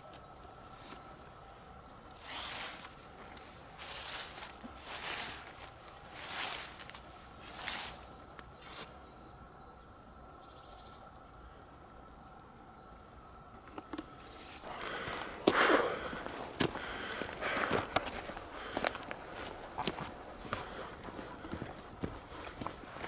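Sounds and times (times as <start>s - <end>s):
footsteps on forest floor: 2.2s - 8.9s, 14.3s - 23.0s.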